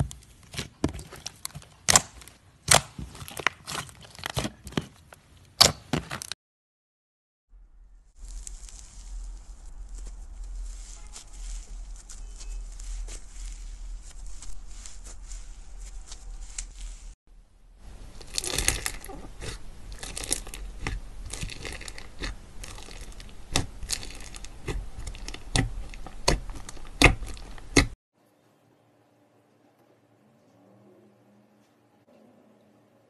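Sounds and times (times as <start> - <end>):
slime stretching and tearing: 0.4 - 4.9, 18.0 - 28.0
crunchy slime popping: 18.1 - 28.0.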